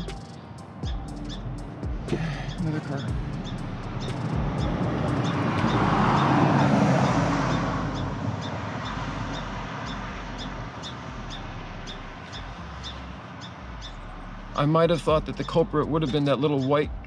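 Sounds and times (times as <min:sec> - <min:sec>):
car passing by: 0:02.8 - 0:15.2.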